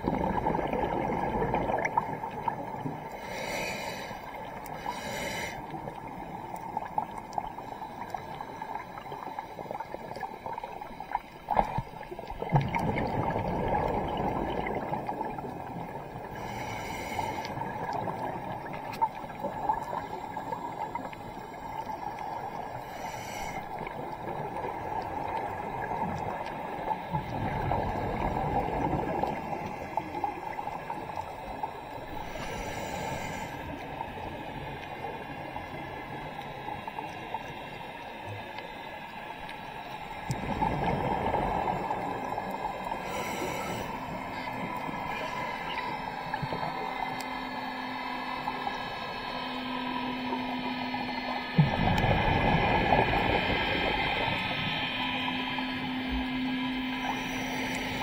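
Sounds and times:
exhale bubbling rumble: 0:00.0 - 0:03.4, 0:11.6 - 0:16.3, 0:23.9 - 0:33.2, 0:40.2 - 0:46.9, 0:51.5 - 0:54.6
underwater wash: 0:00.0 - 0:58.0
regulator inhale hiss: 0:03.0 - 0:06.1, 0:16.2 - 0:17.9, 0:19.4 - 0:24.4, 0:29.3 - 0:50.8, 0:53.1 - 0:58.0.

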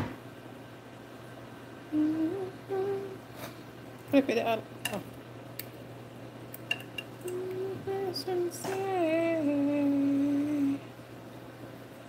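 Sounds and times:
person humming: 0:01.9 - 0:03.2, 0:07.2 - 0:10.9
metal tongs clicking on plate: 0:06.6 - 0:07.1.

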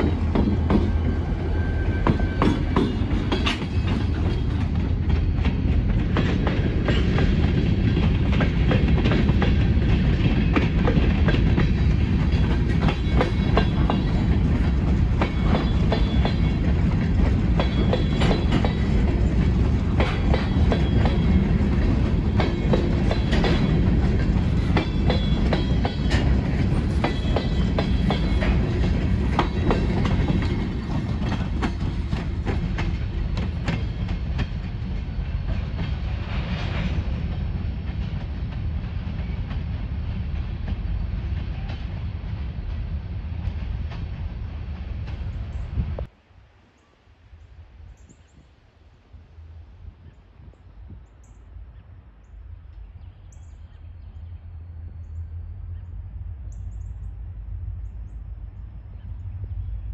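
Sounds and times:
freight train rumbling: 0:00.0 - 0:59.9
wheels clicking over rail joints: 0:02.0 - 0:42.0.

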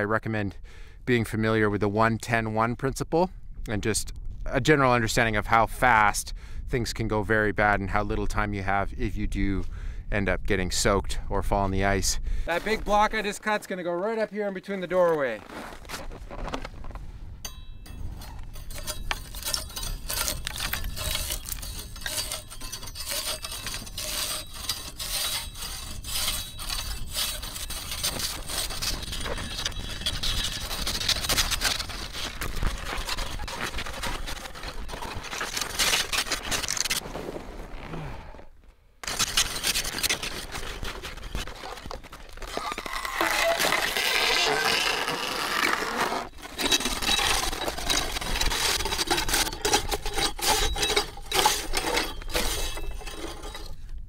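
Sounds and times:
hand saw scraping ice: 0:18.0 - 0:37.5, 0:39.0 - 0:54.0.

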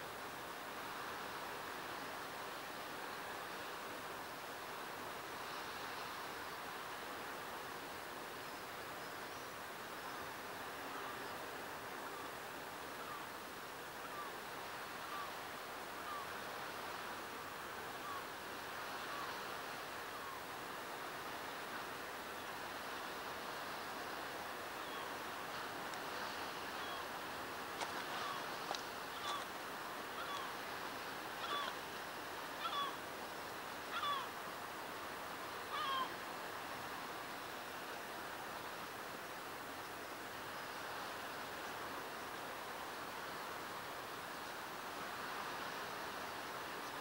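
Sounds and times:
sea surf washing: 0:10.3 - 0:47.0
bird calling: 0:24.8 - 0:27.2, 0:27.8 - 0:29.5, 0:30.2 - 0:30.6, 0:31.4 - 0:31.8, 0:32.6 - 0:33.0, 0:33.9 - 0:34.3, 0:35.7 - 0:36.2.

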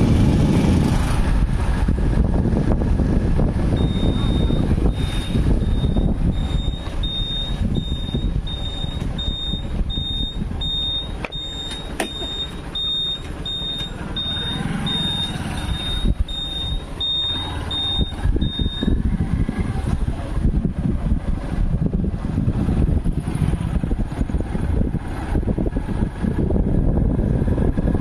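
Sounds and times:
vehicle rumble: 0:00.0 - 0:28.0
wind: 0:00.0 - 0:28.0
high electronic beeping: 0:03.8 - 0:19.0.

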